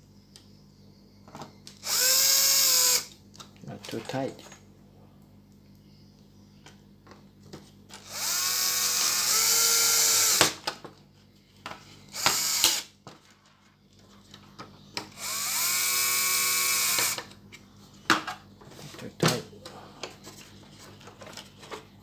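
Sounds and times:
cordless drill driving screws: 0:01.8 - 0:03.1, 0:08.0 - 0:10.4, 0:12.1 - 0:12.8, 0:15.1 - 0:17.2.

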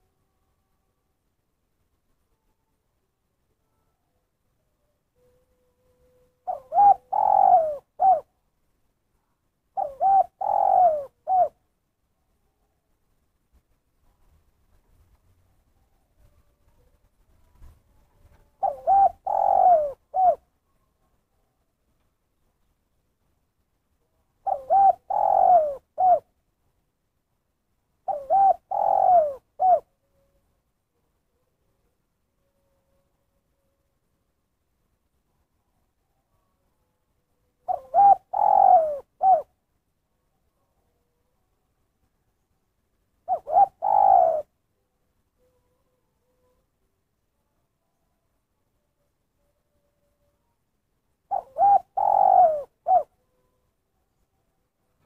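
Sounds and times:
dove cooing: 0:05.2 - 0:08.3, 0:09.7 - 0:11.6, 0:18.3 - 0:20.5, 0:24.4 - 0:26.3, 0:28.0 - 0:30.0, 0:37.6 - 0:39.6, 0:43.2 - 0:44.6, 0:51.3 - 0:53.5.

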